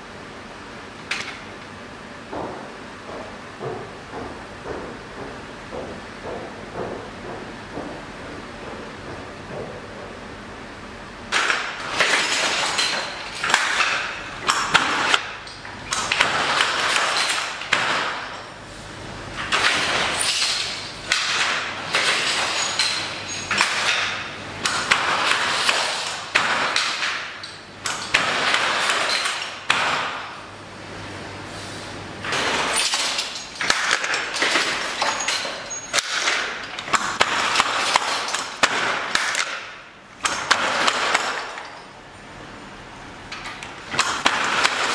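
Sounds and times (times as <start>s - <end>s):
sharp loom knocks: 11.3s - 18.6s, 19.4s - 30.5s, 32.2s - 41.8s, 43.4s - 44.9s
loom rustling clatter: 11.3s - 30.5s, 32.2s - 42.0s, 43.3s - 44.9s.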